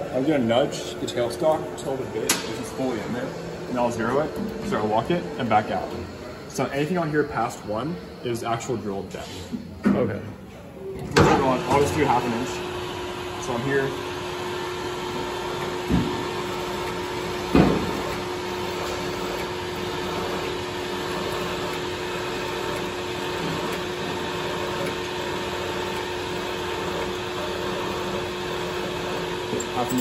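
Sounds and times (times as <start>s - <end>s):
metal lathe drilling hum: 11.5s - 30.0s.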